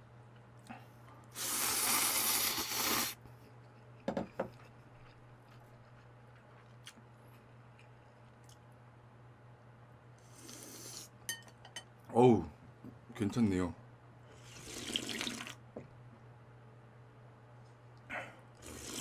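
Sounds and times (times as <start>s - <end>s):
person slurping noodles: 1.3s - 3.2s, 10.2s - 11.1s, 14.4s - 15.5s, 18.6s - 19.0s.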